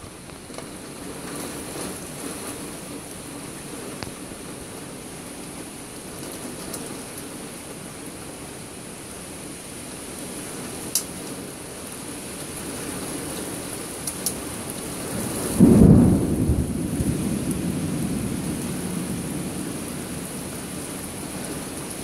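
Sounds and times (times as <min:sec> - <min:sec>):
heavy rain hissing: 0:00.0 - 0:22.0
low thunder rumbling: 0:14.8 - 0:22.0.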